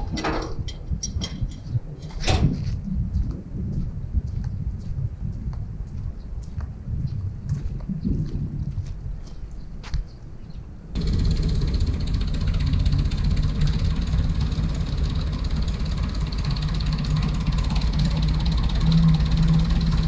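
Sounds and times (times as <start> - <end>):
tractor engine running: 11.0 - 20.0.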